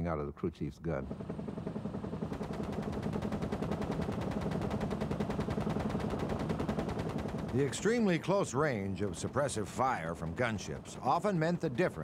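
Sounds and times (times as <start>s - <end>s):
machine gun firing: 1.1s - 8.3s.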